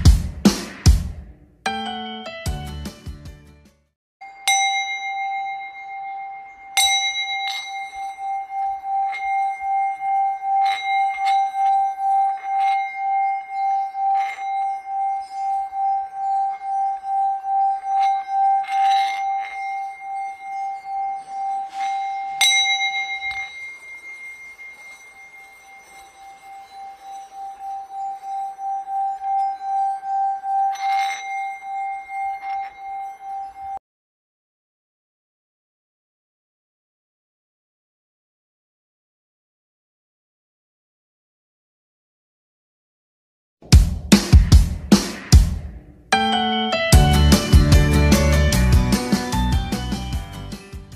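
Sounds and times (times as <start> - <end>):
singing bowl ringing: 4.2 - 33.8, 46.1 - 50.8.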